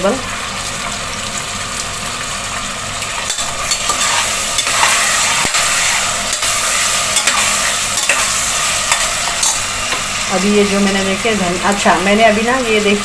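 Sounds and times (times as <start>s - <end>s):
food sizzling in hot oil: 0.0s - 13.0s
spatula scraping a pot: 3.3s - 9.7s.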